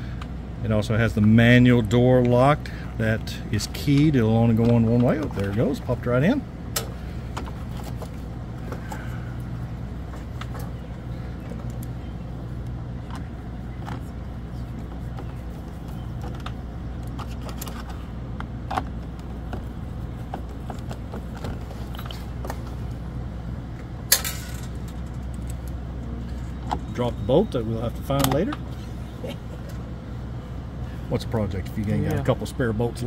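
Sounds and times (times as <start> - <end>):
low hum: 0.0 - 33.0
bolt dropping metallic clink: 24.1 - 25.6.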